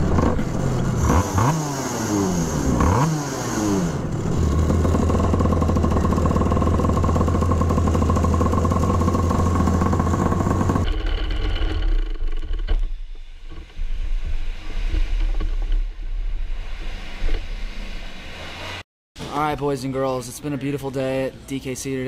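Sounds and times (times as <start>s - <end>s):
kart engine running: 0.0s - 12.7s.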